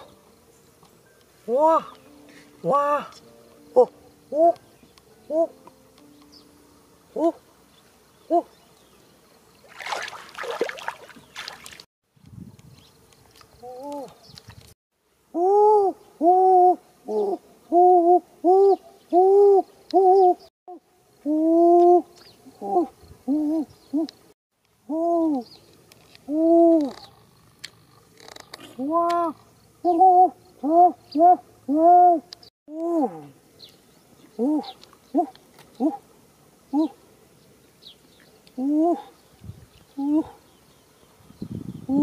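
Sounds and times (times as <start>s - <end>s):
bird hooting: 2.6s - 5.6s, 15.4s - 20.5s, 21.2s - 24.2s, 26.3s - 27.2s, 28.8s - 33.3s, 34.4s - 36.1s, 36.7s - 37.0s, 38.6s - 39.2s, 40.0s - 40.4s
water splashing and sloshing: 9.6s - 11.9s.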